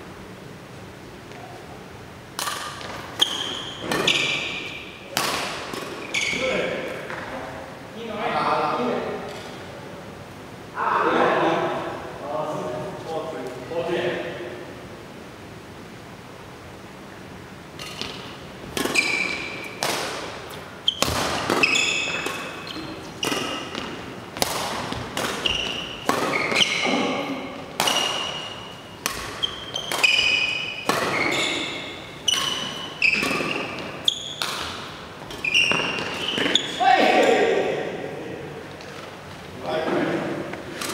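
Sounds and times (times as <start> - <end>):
racket hitting shuttlecock: 2.3 - 7.3, 17.8 - 37.3.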